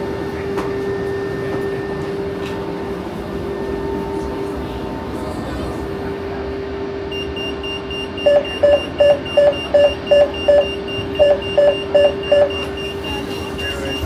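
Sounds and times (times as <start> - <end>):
steady hum: 0.0 - 14.0
door warning beeps: 7.1 - 14.0.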